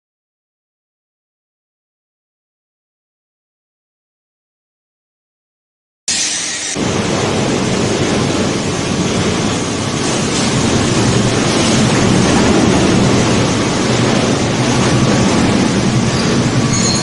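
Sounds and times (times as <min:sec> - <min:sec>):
conveyor and crusher machinery noise: 0:06.1 - 0:17.0
low machinery hum: 0:06.4 - 0:17.0.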